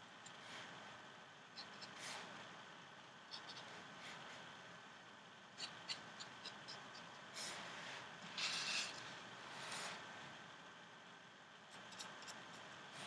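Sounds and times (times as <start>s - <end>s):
pen scratching on paper: 1.6s - 2.4s, 3.3s - 4.4s, 5.6s - 10.1s.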